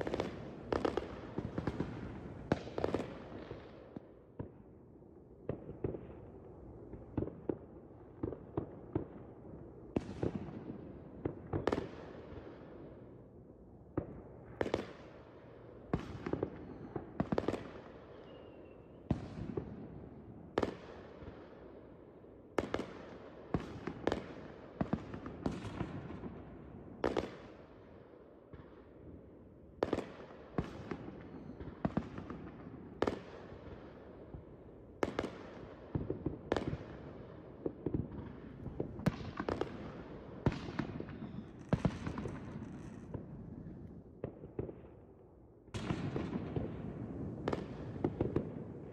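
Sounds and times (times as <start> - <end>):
fireworks bangs echoing: 0.0 - 3.8, 35.0 - 43.4, 45.7 - 48.9.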